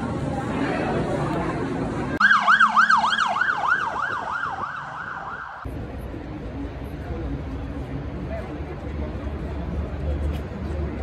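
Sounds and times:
city traffic rumble: 0.0s - 11.0s
emergency siren yelping: 2.2s - 5.7s.

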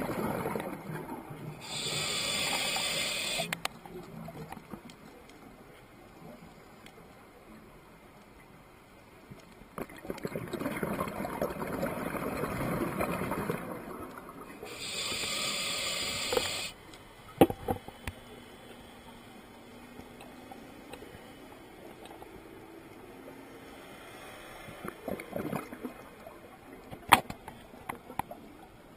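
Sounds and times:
regulator inhalation hiss: 1.6s - 3.5s, 14.7s - 16.8s
underwater exhaled air bubbling: 9.9s - 14.0s.

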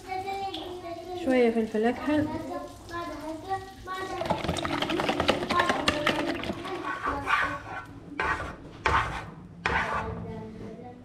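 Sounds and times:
fork beating eggs in bowl: 4.2s - 10.1s.

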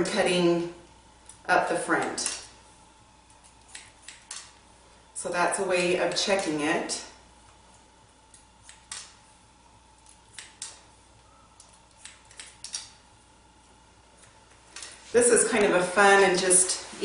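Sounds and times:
faint steady hum: 0.0s - 17.0s
scissors snipping hair: 3.3s - 4.6s, 8.3s - 9.2s, 10.0s - 10.8s, 11.6s - 13.0s.

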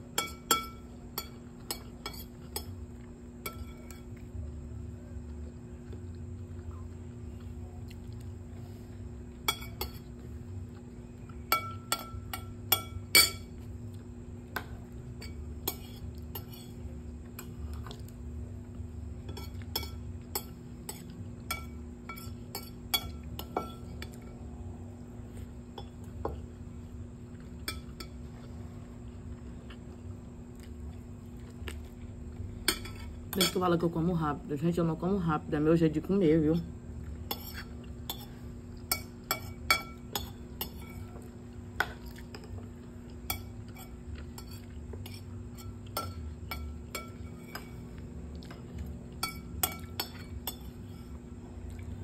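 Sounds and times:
cutlery clinking on a plate: 0.2s - 2.8s, 11.5s - 13.6s, 19.3s - 24.4s, 37.3s - 42.5s, 43.2s - 47.8s, 49.2s - 50.8s.

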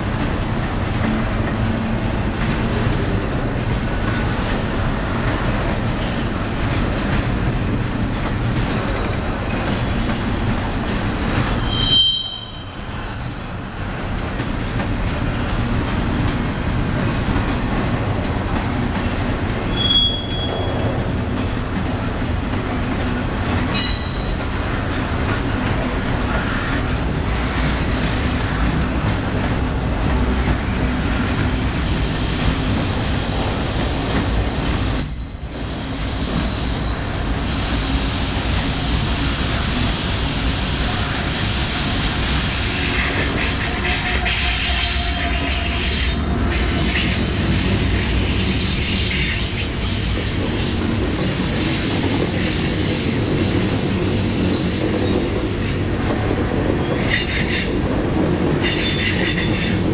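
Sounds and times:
train wheels rumbling on rails: 0.0s - 59.9s
high-pitched wheel squeals: 11.6s - 13.8s, 19.7s - 20.8s, 34.4s - 36.0s.

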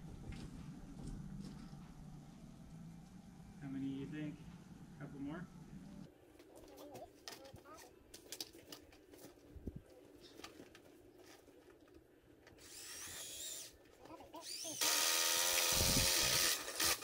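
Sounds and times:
power drill whirring into plastic pipe: 12.6s - 13.8s, 14.4s - 17.0s.

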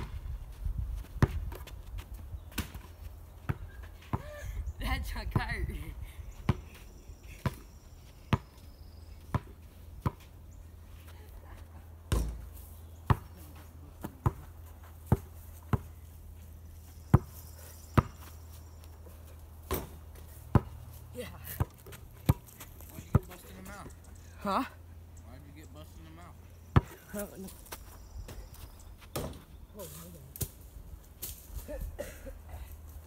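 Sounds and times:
basketball bouncing on sandy ground: 0.0s - 4.4s, 6.4s - 10.4s, 12.0s - 24.0s, 26.7s - 29.6s.

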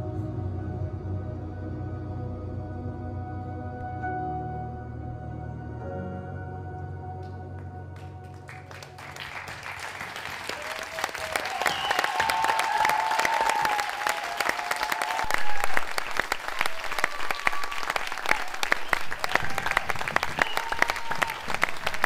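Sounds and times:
ambient music: 0.0s - 10.3s
audience applause: 8.0s - 22.0s
people cheering: 8.3s - 22.0s.

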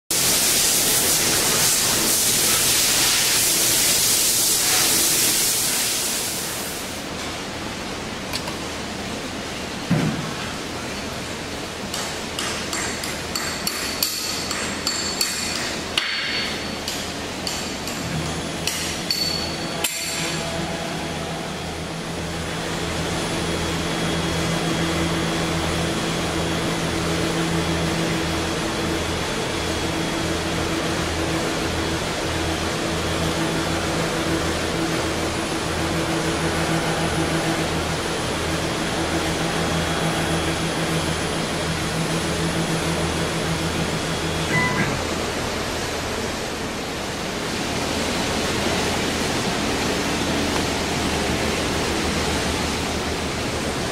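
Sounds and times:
router machinery humming and throbbing: 18.1s - 53.9s
brief beep: 44.5s - 45.1s.

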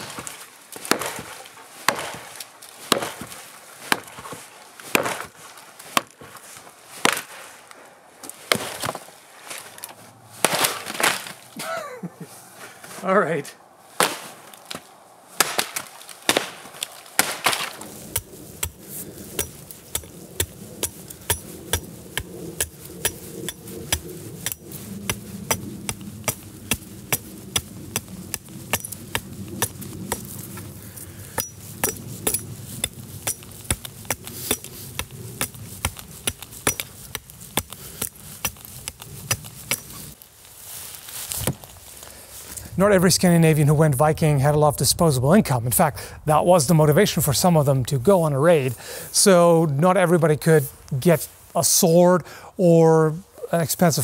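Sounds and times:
axe chopping wood: 0.0s - 6.2s, 7.0s - 7.3s, 8.4s - 9.0s, 10.4s - 11.3s, 14.0s - 30.4s, 31.3s - 40.0s, 41.4s - 41.7s
wood splintering: 0.0s - 6.4s, 8.2s - 11.6s, 14.0s - 40.3s.

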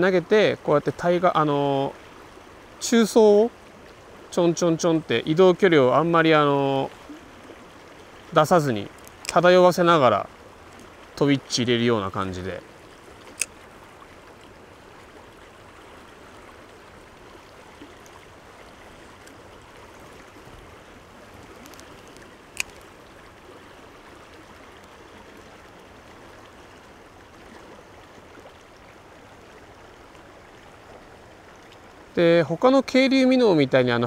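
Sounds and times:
stream water flowing: 0.0s - 34.0s
sharp click: 9.0s - 9.4s, 21.7s - 22.9s.

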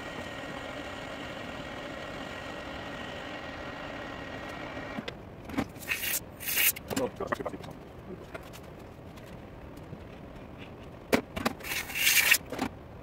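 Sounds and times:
short hissing bursts: 5.8s - 6.8s.

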